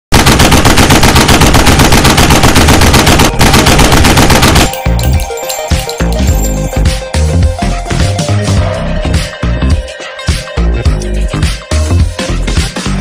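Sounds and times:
rapid machine-gun fire: 0.1s - 4.8s
electronic music with heavy bass: 6.0s - 13.0s.

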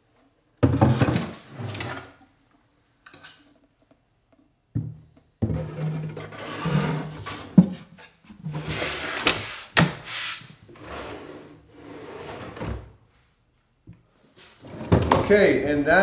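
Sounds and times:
drawer sliding: 0.8s - 2.2s, 5.5s - 7.8s, 8.4s - 13.0s.

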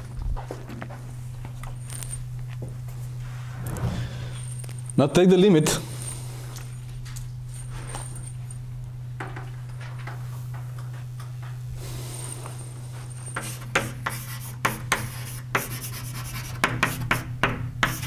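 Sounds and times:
low electrical hum: 0.0s - 18.0s
chalk scratching and tapping on board: 13.4s - 18.0s.

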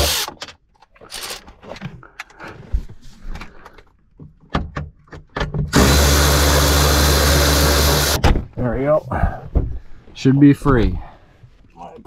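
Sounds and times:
cordless electric ratchet running: 0.0s - 0.3s, 5.7s - 8.2s.

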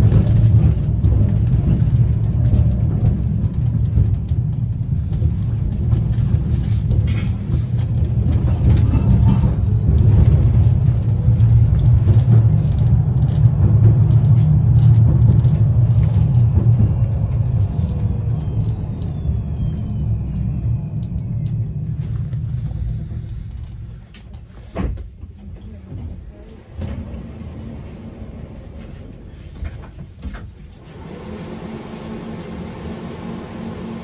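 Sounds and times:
tram rumbling along track: 0.0s - 34.0s
falling electric whine: 15.6s - 23.8s.

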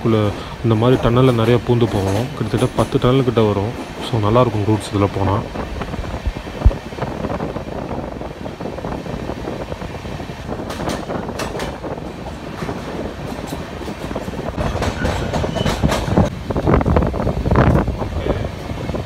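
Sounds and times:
train rumble in tunnel: 0.0s - 19.0s
wheels clacking over rail joints: 0.3s - 5.0s, 10.4s - 16.3s.

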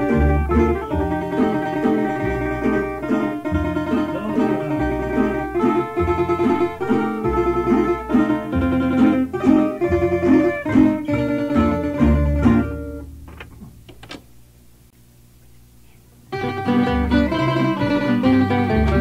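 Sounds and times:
plucked string instrumental music: 0.0s - 14.1s, 16.3s - 19.0s
faint string plucks: 0.0s - 14.2s.

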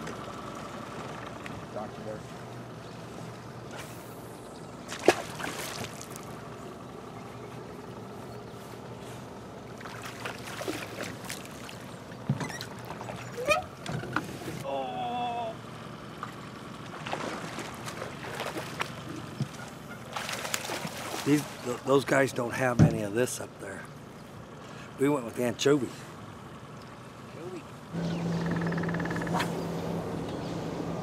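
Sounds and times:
fish splashing at water surface: 4.9s - 6.3s, 9.8s - 12.0s, 16.9s - 21.6s.

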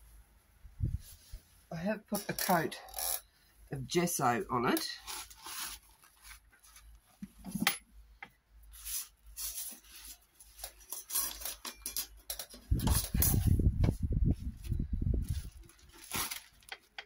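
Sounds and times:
plastic sheet crinkling: 4.9s - 7.4s, 8.7s - 11.6s, 15.2s - 17.0s.

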